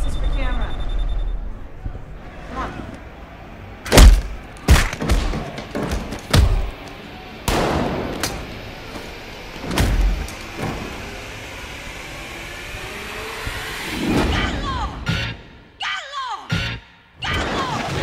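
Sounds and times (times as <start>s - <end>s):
heavy hits: 3.8s - 6.9s
action film music: 7.4s - 18.0s.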